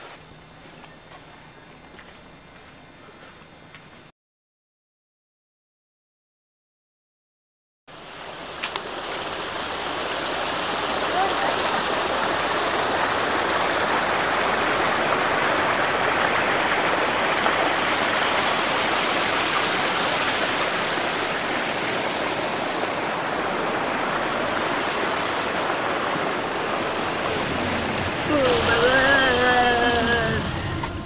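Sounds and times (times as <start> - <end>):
steady rushing noise: 7.9 - 31.0.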